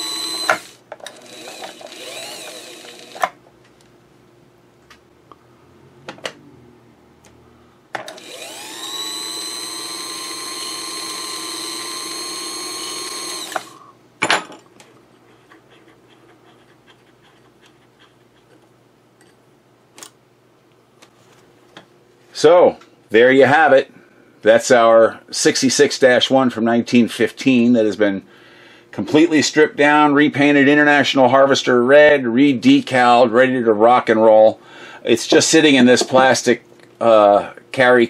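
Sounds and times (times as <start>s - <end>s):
sewing machine motor whine: 0.0s - 3.3s, 8.1s - 13.9s.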